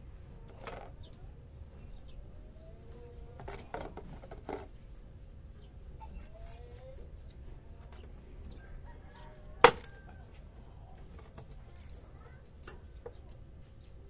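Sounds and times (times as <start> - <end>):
faint bird calls: 5.6 - 11.2.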